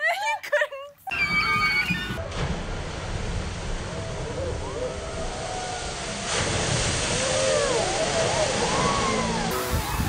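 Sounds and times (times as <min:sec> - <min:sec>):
water spray rushing: 0:05.2 - 0:10.0
people shrieking and yelling: 0:07.1 - 0:10.0.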